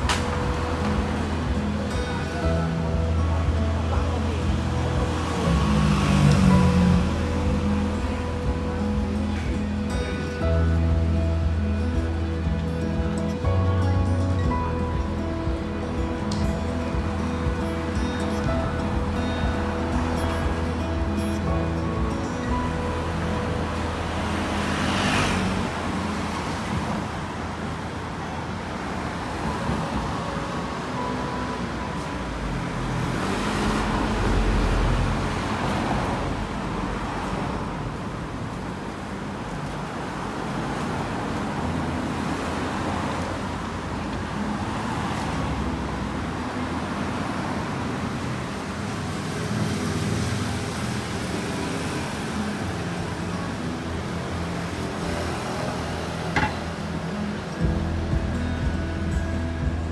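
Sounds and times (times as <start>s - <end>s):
cars driving past: 0.0s - 59.9s
vehicle passing close: 4.0s - 9.8s, 17.0s - 27.4s.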